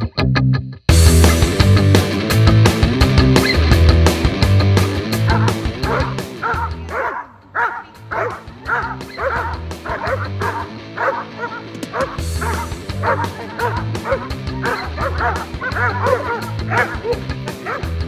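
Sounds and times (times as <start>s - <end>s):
rock music: 0.0s - 18.0s
dog yipping and barking: 5.3s - 17.9s.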